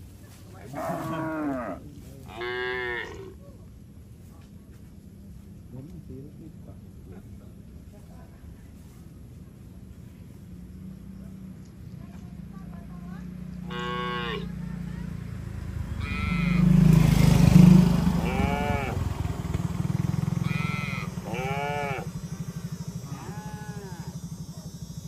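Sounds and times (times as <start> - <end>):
cattle mooing: 0.7 - 3.3, 13.6 - 14.5, 16.0 - 16.8, 18.1 - 19.1, 20.4 - 22.2, 23.0 - 24.2
motorcycle engine running: 7.3 - 25.0.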